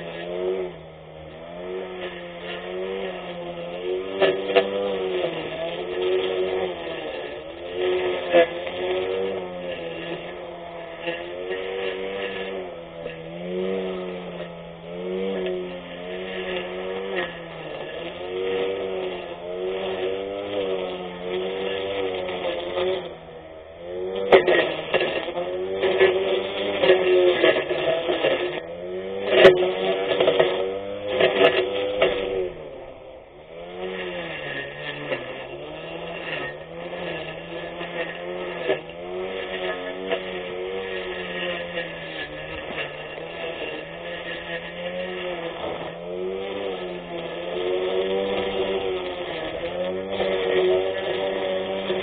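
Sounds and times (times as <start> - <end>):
electric grass cutter whine: 0.0 - 52.0.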